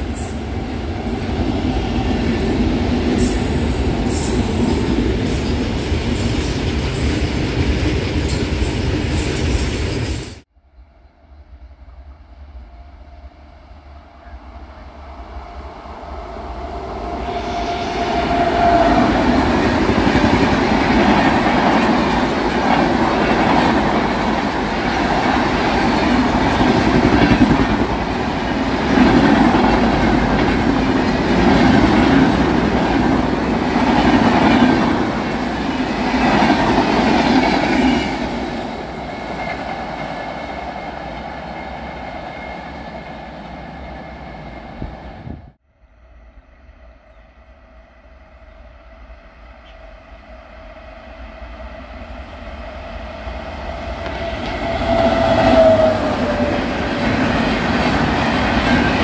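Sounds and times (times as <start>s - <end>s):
train wheels clattering on rails: 18.7s - 42.4s.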